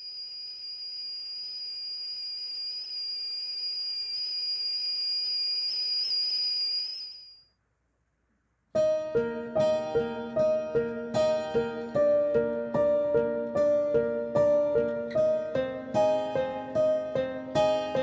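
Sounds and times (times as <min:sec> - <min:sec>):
high-pitched ringing tone: 0:00.0 - 0:07.6.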